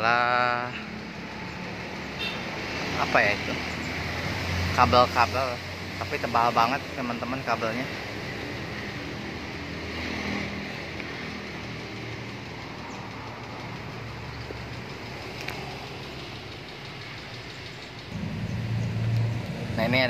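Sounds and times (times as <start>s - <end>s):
engine humming: 5.6s - 20.0s.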